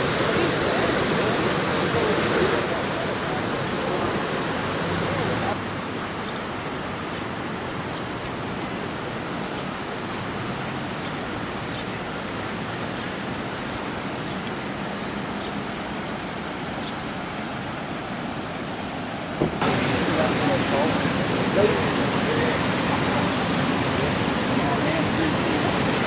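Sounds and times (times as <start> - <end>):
floodwater rushing: 0.0 - 26.0.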